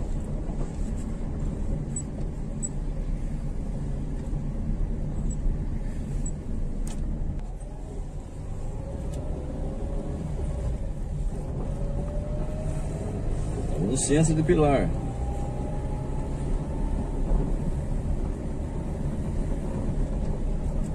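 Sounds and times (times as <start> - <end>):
vehicle engine and road rumble: 0.0 - 20.9
rising whine: 11.4 - 17.6.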